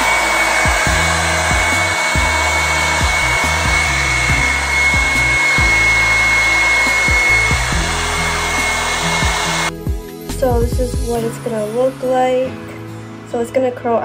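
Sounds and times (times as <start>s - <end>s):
hot-air brush blowing with motor whine: 0.0s - 9.8s.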